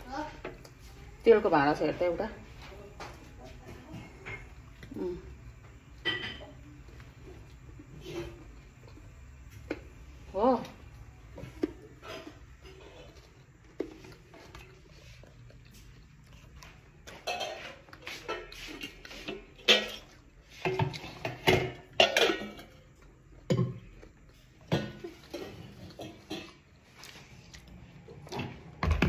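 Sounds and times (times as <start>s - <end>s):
dishes and cutlery clattering: 3.7s - 4.6s, 6.0s - 6.7s, 17.1s - 23.9s, 24.6s - 26.7s.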